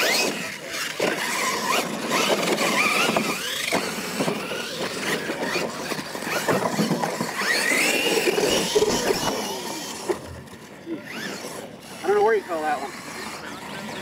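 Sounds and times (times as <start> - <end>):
electric motors whining: 0.0 - 14.0
knocks and tyre noise on dirt: 0.1 - 11.2.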